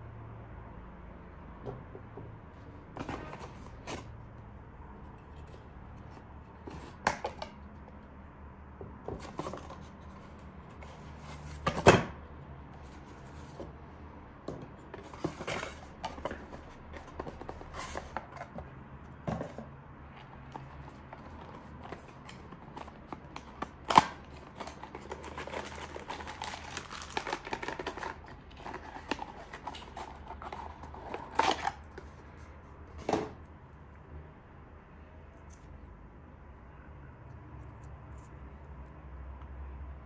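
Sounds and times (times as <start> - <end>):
packaging rustling and clicking: 20.2 - 32.1.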